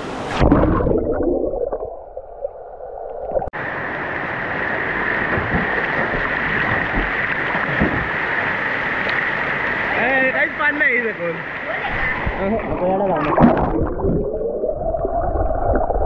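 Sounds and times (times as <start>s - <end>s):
underwater gurgling: 0.2s - 3.6s, 11.9s - 16.0s.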